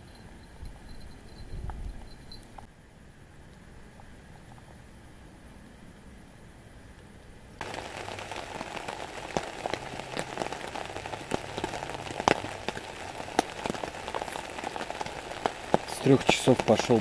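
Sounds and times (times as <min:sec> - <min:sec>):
faint hiss: 0:07.6 - 0:17.0
heavy rain on tent fabric: 0:07.6 - 0:17.0.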